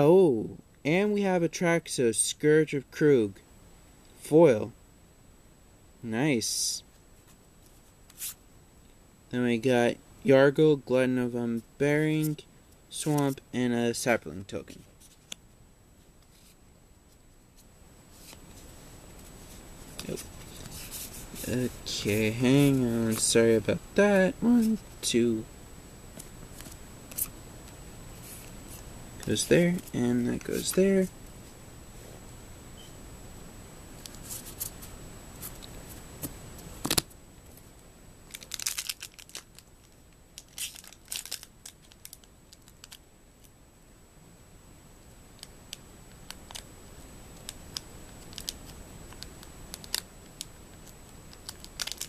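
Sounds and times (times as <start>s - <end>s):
cards rustling and sliding: 7.2s - 8.4s, 13.0s - 13.4s, 17.6s - 23.6s, 26.2s - 31.1s, 34.0s - 37.1s
foil wrapper crinkling and tearing: 38.3s - 43.0s, 48.2s - 50.1s, 51.3s - 52.0s.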